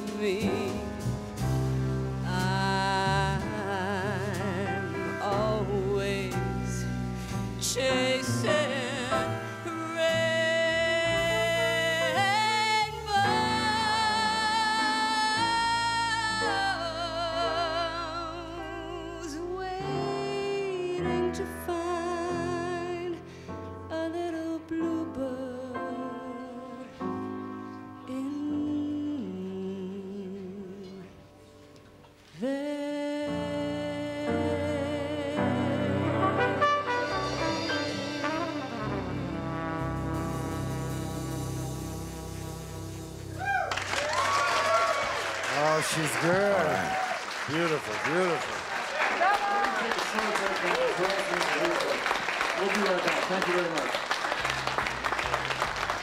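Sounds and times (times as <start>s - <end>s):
woman singing: 0.0s - 1.0s, 2.2s - 7.0s, 7.6s - 23.3s, 23.9s - 27.1s, 28.0s - 31.3s, 32.3s - 38.6s
jazz band playing: 0.0s - 29.3s, 33.3s - 56.0s.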